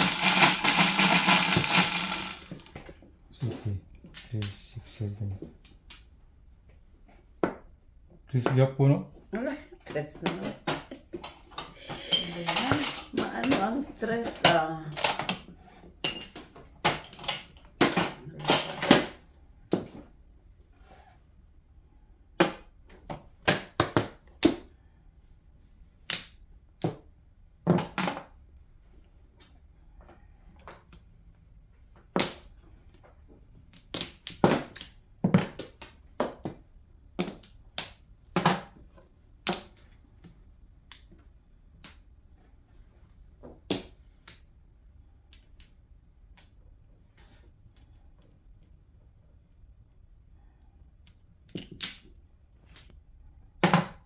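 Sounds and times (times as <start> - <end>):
mahjong tiles clacking: 0.0 - 2.5.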